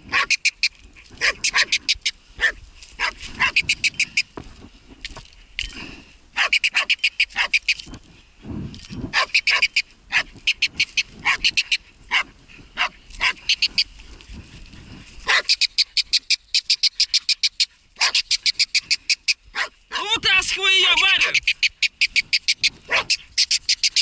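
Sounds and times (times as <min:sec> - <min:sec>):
dog barking: 0:00.1 - 0:00.4, 0:01.2 - 0:01.8, 0:02.4 - 0:03.6, 0:06.4 - 0:07.6, 0:09.1 - 0:10.3, 0:11.2 - 0:11.5, 0:12.1 - 0:13.4, 0:15.2 - 0:15.5, 0:18.0 - 0:18.2, 0:19.5 - 0:19.8, 0:22.9 - 0:23.2.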